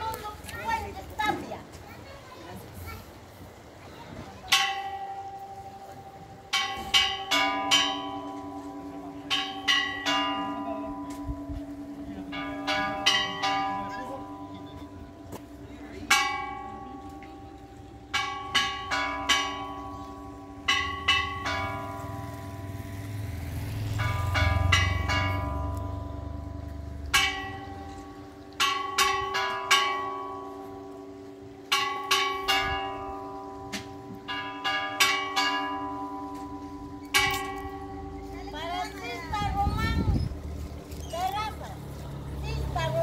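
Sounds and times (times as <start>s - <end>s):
church bells pealing: 4.4s - 43.0s.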